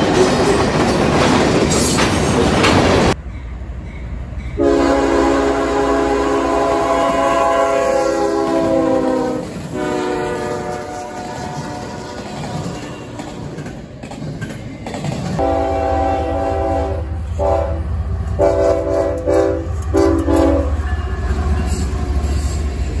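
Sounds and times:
train wheels clattering on rails: 0.0 - 4.6, 8.4 - 15.9
low rumble of train: 0.0 - 23.0
locomotive air horn blasts: 4.6 - 12.3, 15.4 - 21.8.

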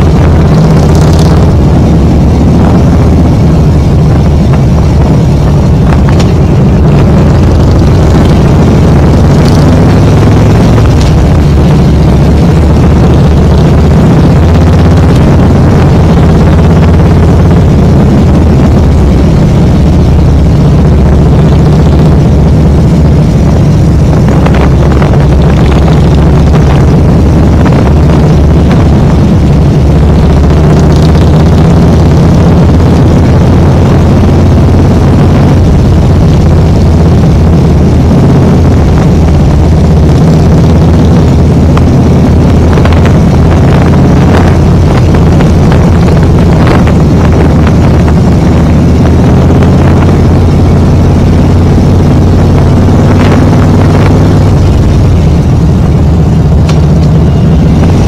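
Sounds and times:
motorcycle engine running: 0.0 - 58.0.

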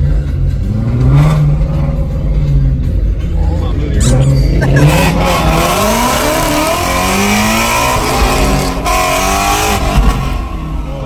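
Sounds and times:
car engine revving loudly: 0.0 - 2.9, 4.0 - 11.0.

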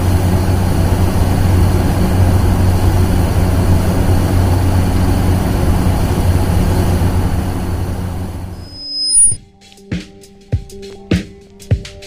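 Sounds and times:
heavy engine running: 0.0 - 9.4.

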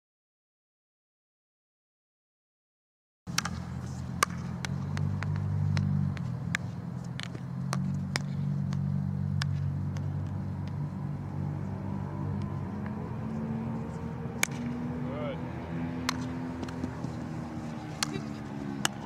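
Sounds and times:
hockey stick tapping ball: 3.3 - 10.8, 14.4 - 14.8, 16.0 - 19.0
steady low hum: 3.3 - 19.0.

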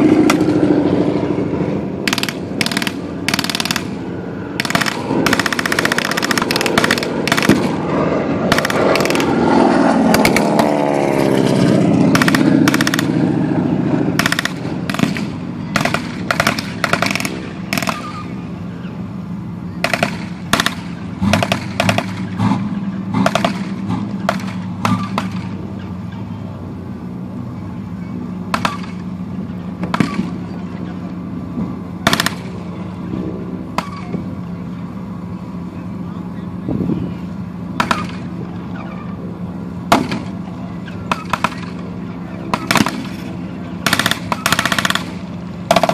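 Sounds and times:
armoured vehicle engine running: 0.0 - 45.9
gunshots cracking: 2.0 - 4.0, 4.6 - 7.8, 8.5 - 10.8, 12.1 - 13.2, 14.2 - 18.2, 19.8 - 22.4, 23.2 - 25.6, 28.5 - 29.0, 32.0 - 32.5, 37.8 - 38.3, 39.9 - 40.4, 42.5 - 43.2, 43.8 - 45.9
machine-gun fire bursts: 2.0 - 4.0, 4.6 - 7.8, 8.5 - 9.4, 12.1 - 13.1, 14.2 - 18.1, 19.8 - 22.3, 23.2 - 23.7, 32.0 - 32.4, 43.8 - 45.9.

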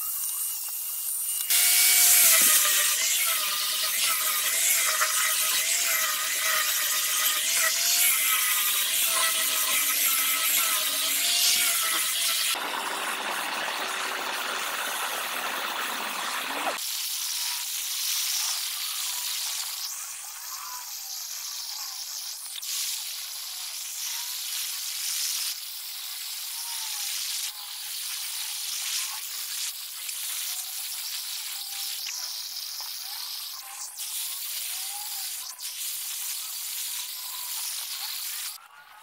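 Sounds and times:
blowtorch hissing: 0.0 - 20.0.

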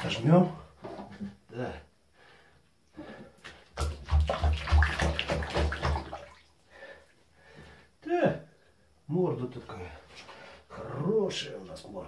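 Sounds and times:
water splashing into bathtub: 3.5 - 6.7.

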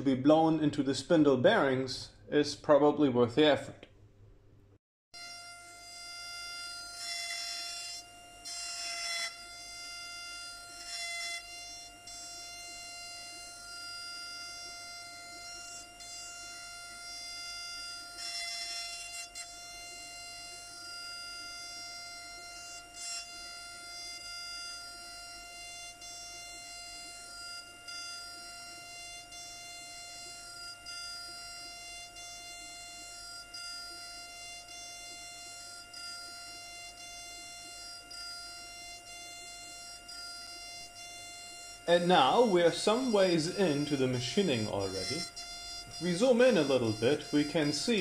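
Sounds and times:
milling spindle high whine: 5.2 - 48.0
end mill cutting metal: 41.9 - 48.0.

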